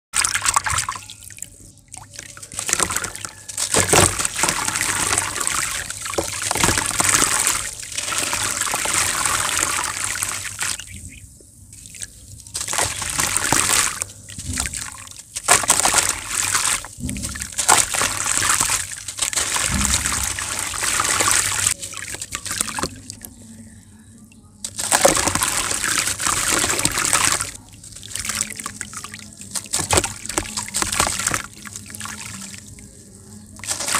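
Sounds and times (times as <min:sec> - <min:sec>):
hands splashing in water: 0:00.2 - 0:11.0, 0:11.8 - 0:23.2, 0:24.7 - 0:32.8, 0:33.6 - 0:33.9
grains and water trickling: 0:00.2 - 0:33.9
wet sand crumbling: 0:12.5 - 0:21.8, 0:33.6 - 0:33.9.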